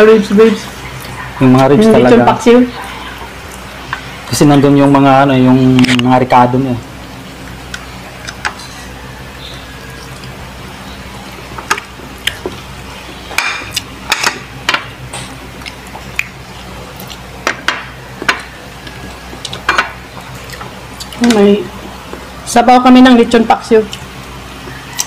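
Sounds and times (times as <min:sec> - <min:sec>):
steady low hum: 0:00.0 - 0:25.0
wet chewing smacks and clicks: 0:07.7 - 0:08.6, 0:09.9 - 0:10.4, 0:11.6 - 0:12.6, 0:13.6 - 0:13.9, 0:15.2 - 0:17.3, 0:18.4 - 0:21.3.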